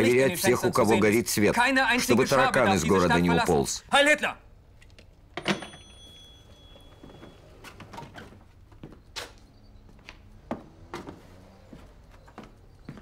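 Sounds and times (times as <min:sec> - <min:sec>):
telephone ringing tone: 0:05.4 - 0:07.6.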